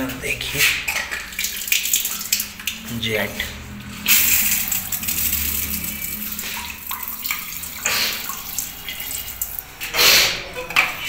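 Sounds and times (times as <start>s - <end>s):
water spraying on tiled floor: 1.1s - 3.0s, 3.7s - 10.4s.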